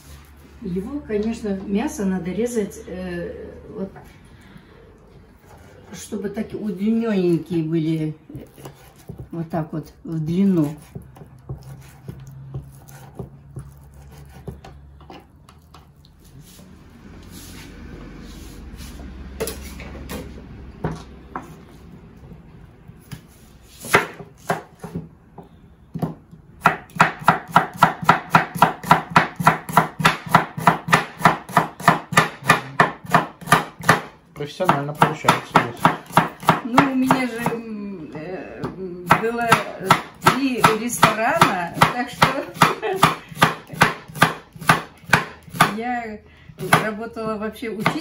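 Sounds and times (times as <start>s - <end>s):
knife chopping on wooden board: 8.3s - 9.5s, 10.4s - 15.2s, 23.8s - 37.6s, 39.1s - 45.8s, 46.6s - 48.0s.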